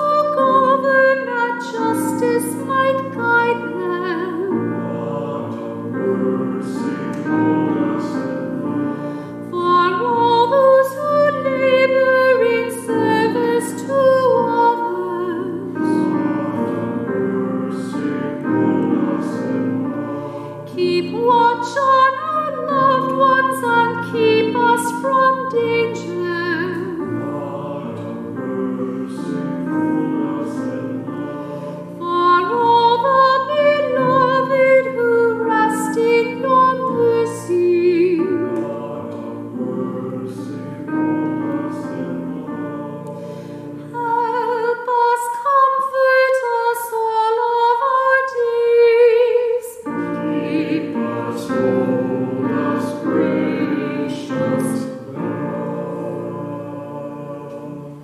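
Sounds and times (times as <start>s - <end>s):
woman singing with vibrato: 20.7s - 26.9s, 32.0s - 39.0s.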